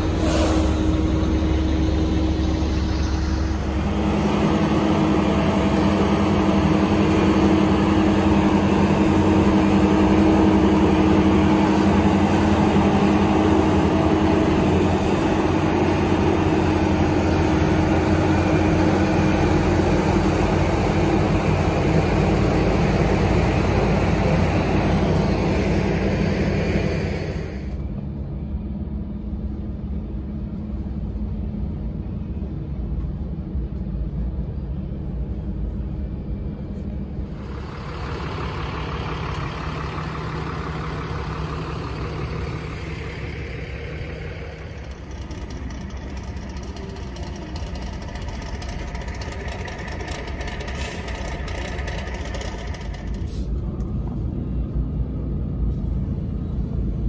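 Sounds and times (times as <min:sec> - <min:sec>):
diesel engines under load: 0:00.0 - 0:57.0.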